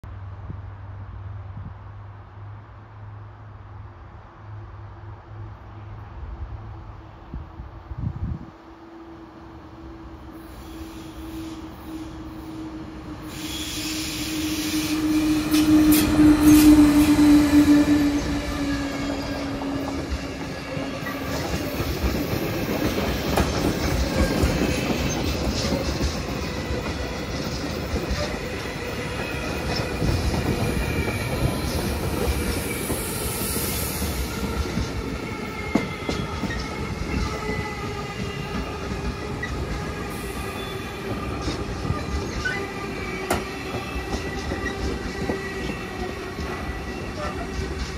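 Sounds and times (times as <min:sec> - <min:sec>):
electric locomotive hum: 0:00.2 - 0:47.9.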